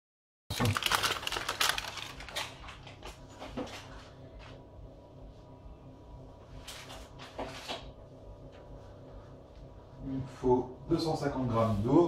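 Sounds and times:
kitchen items clicking and rattling: 0.5s - 3.0s.

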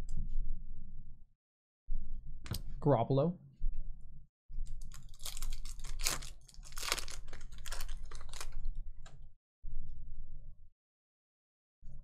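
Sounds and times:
foil wrapper crinkling and tearing: 4.8s - 8.8s.

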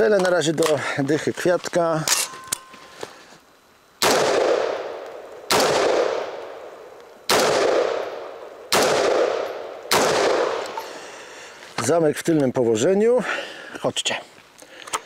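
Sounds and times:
rifle shots with echo: 4.0s - 6.7s, 7.3s - 10.8s.

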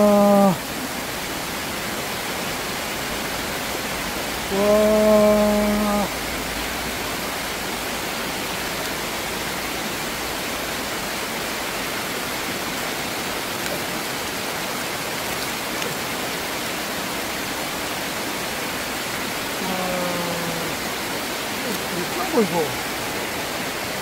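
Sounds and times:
water rushing over weir: 0.0s - 24.0s.

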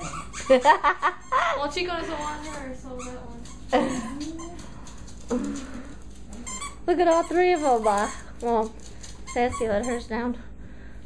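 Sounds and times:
dog whining: 0.0s - 4.9s, 5.5s - 8.3s.

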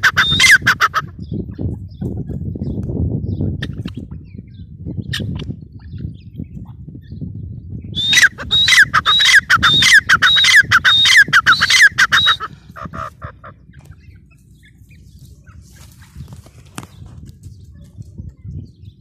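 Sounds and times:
bird calling shrill repeated notes: 0.0s - 0.9s, 7.9s - 15.0s.

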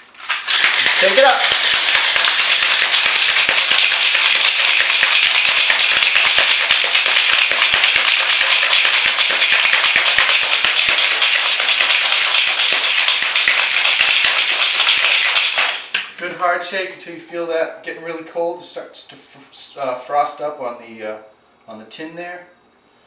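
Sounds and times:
ice rattling in cocktail shaker: 0.2s - 16.0s.

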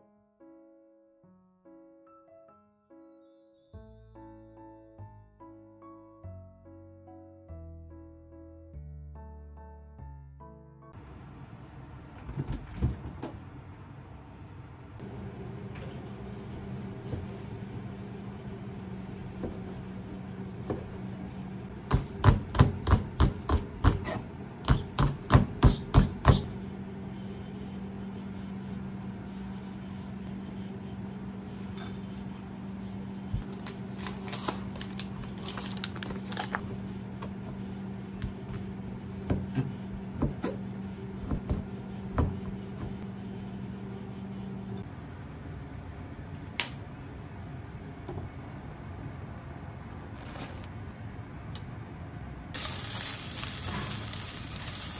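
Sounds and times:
steady low hum: 11.0s - 54.7s
knife chopping on cutting board: 21.8s - 26.5s, 39.3s - 40.6s, 41.2s - 43.0s.

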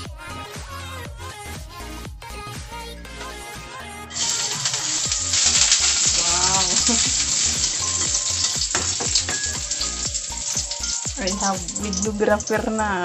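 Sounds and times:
garlic sizzling in hot oil: 4.1s - 13.0s.

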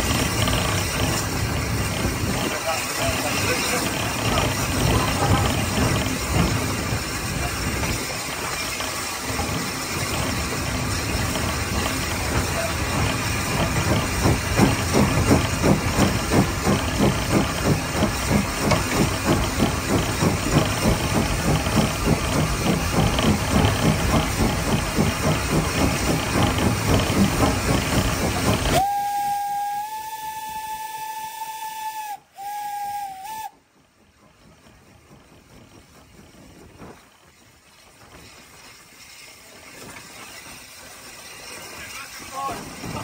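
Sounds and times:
steam hissing: 0.0s - 33.6s, 37.8s - 43.0s
steam locomotive chuffing: 0.0s - 43.0s
steam whistle steady note: 28.8s - 33.6s.

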